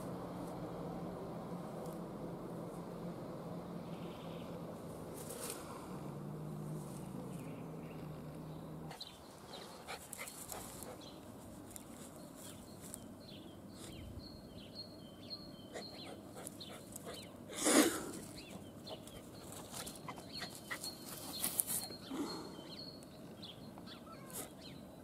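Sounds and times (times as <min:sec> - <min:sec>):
small birds chirping: 0:00.0 - 0:25.0
dog panting: 0:08.9 - 0:11.2, 0:15.7 - 0:17.3, 0:18.5 - 0:21.4.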